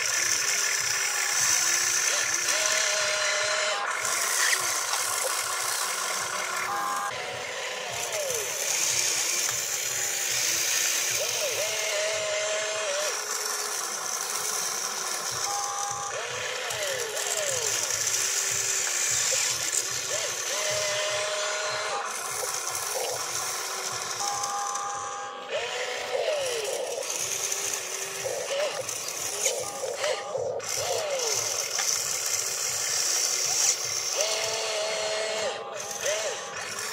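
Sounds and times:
toy electric motors whining: 0:00.0 - 0:36.9.

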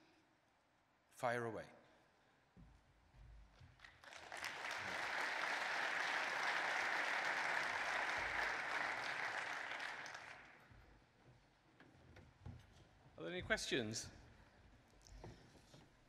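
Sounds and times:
audience applause: 0:03.8 - 0:10.7.

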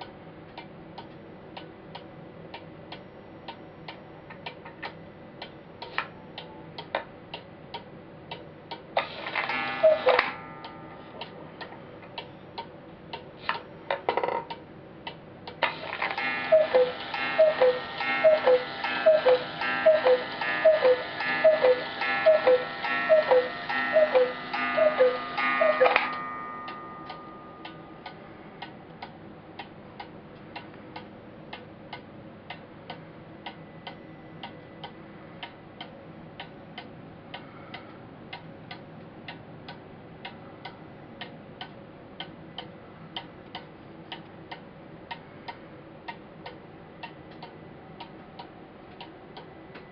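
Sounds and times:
clock ticking: 0:00.0 - 0:13.6, 0:14.2 - 0:49.9
cuckoo clock calls: 0:09.0 - 0:10.9, 0:15.6 - 0:27.8
clock chime ringing: 0:09.3 - 0:11.0, 0:16.1 - 0:28.0.

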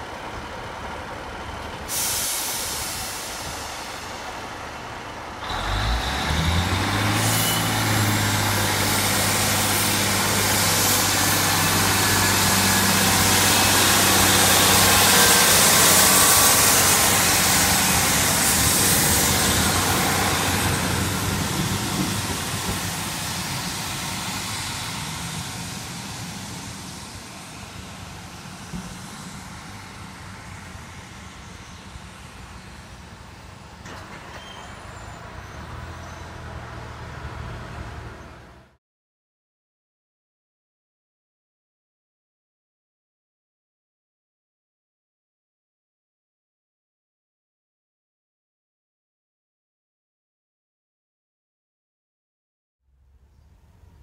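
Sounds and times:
diesel train engine: 0:00.0 - 0:38.8.

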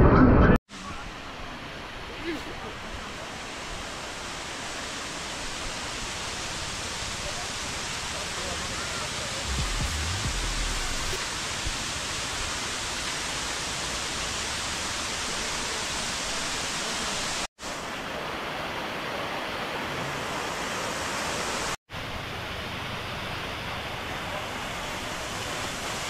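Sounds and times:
waterfall rushing: 0:01.7 - 0:21.8.

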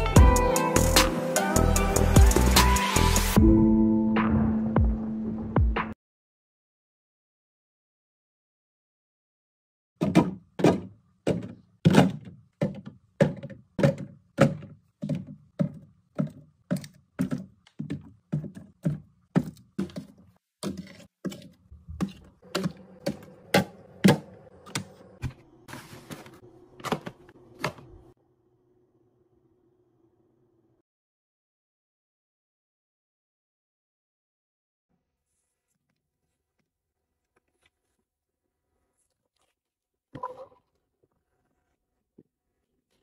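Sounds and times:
bottles thunking on shelves: 0:10.0 - 0:15.8.

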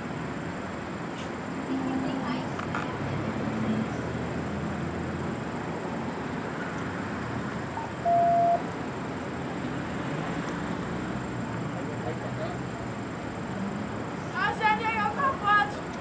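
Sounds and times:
street background noise: 0:00.0 - 0:16.0
electronic beep: 0:07.8 - 0:08.6.

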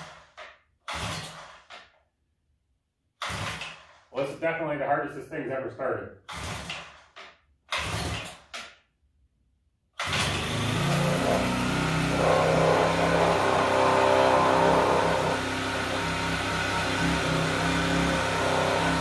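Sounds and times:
small engine running: 0:10.0 - 0:19.0.

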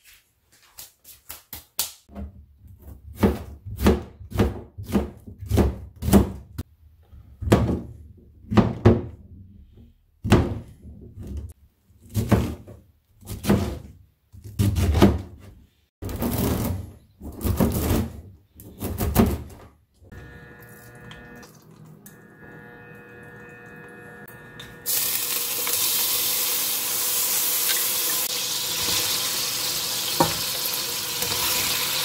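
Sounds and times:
knife chopping on cutting board: 0:03.1 - 0:06.5.

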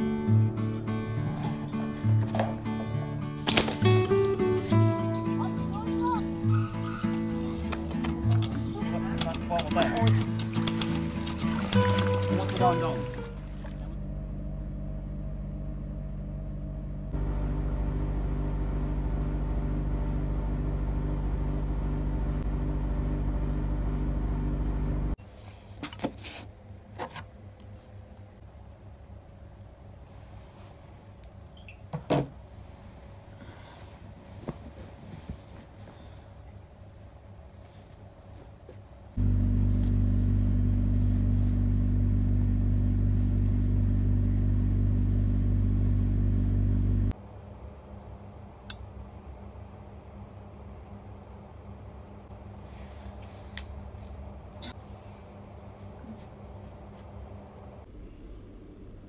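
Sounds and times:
loud low hum: 0:00.0 - 0:25.2, 0:39.2 - 0:52.7
low mechanical drone: 0:00.0 - 0:25.2, 0:39.0 - 0:59.0.

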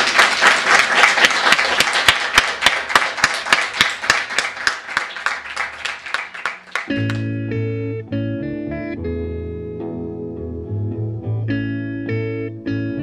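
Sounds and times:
small crowd applauding: 0:00.0 - 0:07.3.

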